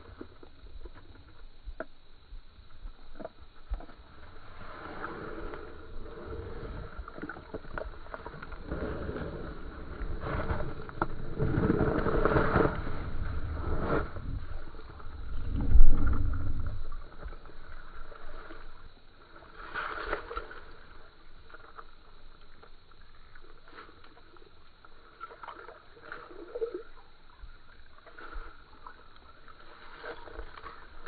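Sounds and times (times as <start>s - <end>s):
water sloshing and splashing: 3.1s - 31.0s
low rumbles: 5.3s - 19.4s.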